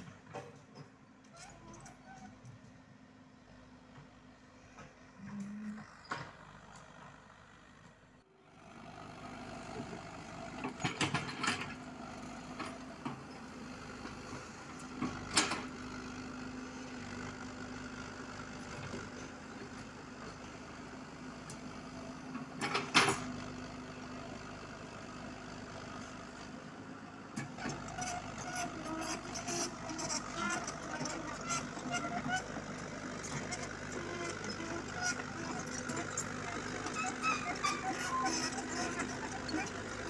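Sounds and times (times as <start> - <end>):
excavator diesel engine humming: 0.0 - 40.0.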